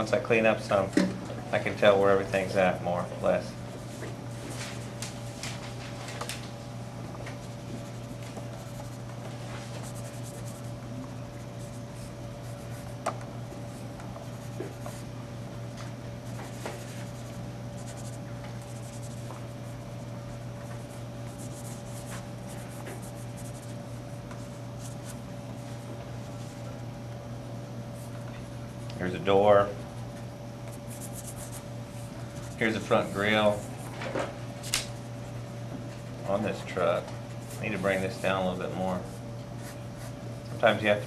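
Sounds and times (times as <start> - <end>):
steady low hum: 0.0 - 41.0
pencil scratching on paper: 7.8 - 9.0, 9.7 - 10.7, 14.2 - 15.0, 16.3 - 19.9, 20.7 - 23.8, 30.8 - 31.6.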